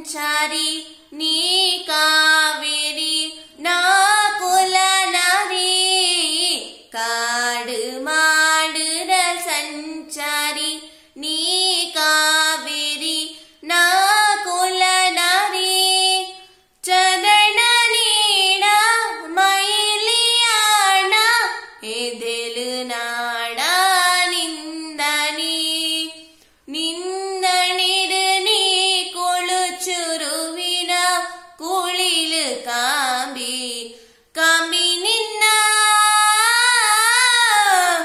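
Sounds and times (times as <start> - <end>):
woman singing unaccompanied: 0.0 - 38.0.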